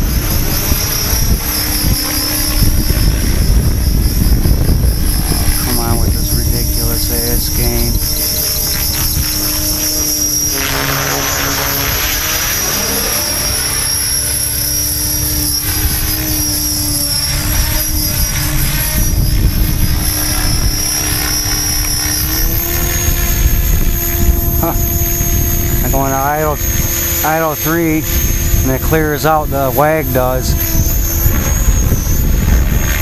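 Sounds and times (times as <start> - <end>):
rc helicopter motor whine: 0.0 - 33.0.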